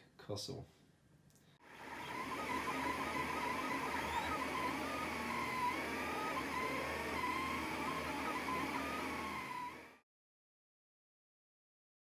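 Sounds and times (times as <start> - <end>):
fan whirring: 1.6 - 10.0
stepper motors whining: 1.7 - 10.0.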